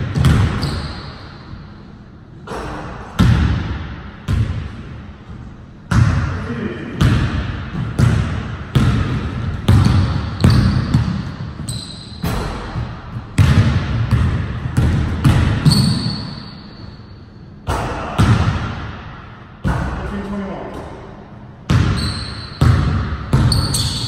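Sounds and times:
basketball bouncing on wooden floor: 0.0s - 1.0s, 3.2s - 4.7s, 7.0s - 16.3s, 21.7s - 24.0s.

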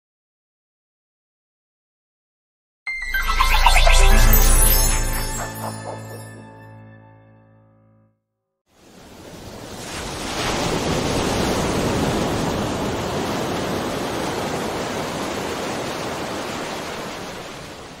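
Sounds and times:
ocean surf washing onto beach: 8.8s - 18.0s.

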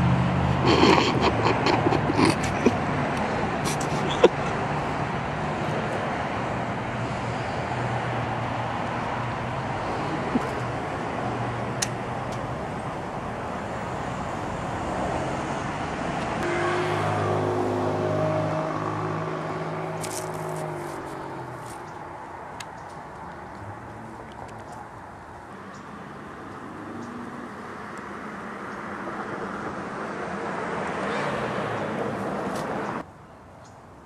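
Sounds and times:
steady engine hum: 0.0s - 33.1s
road traffic: 0.0s - 34.0s
vehicle engine running: 16.4s - 27.1s.

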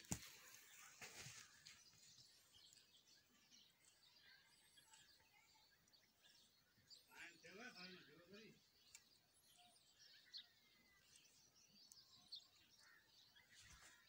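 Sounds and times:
soft rustling: 0.0s - 2.2s
faint bird chirps: 0.0s - 14.0s.

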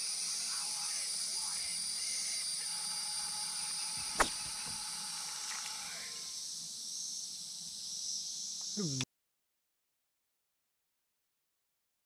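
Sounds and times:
insects droning: 0.0s - 9.0s
sharp click: 4.1s - 4.7s.

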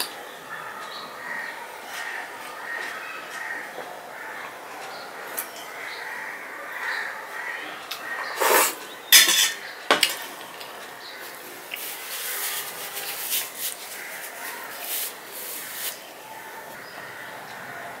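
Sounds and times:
metal plate clattering on table: 8.4s - 10.3s
rubbing and rustling: 11.1s - 16.2s.

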